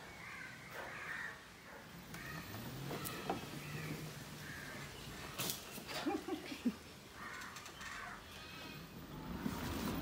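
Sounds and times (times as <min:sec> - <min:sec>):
crows cawing: 0:00.2 - 0:01.5, 0:02.1 - 0:05.3, 0:07.1 - 0:08.9.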